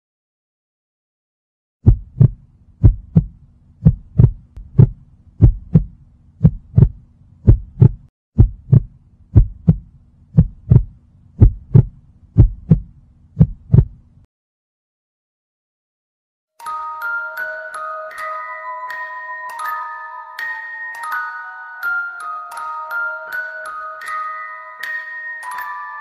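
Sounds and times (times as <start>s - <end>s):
heartbeat thumps: 1.8s - 14.0s.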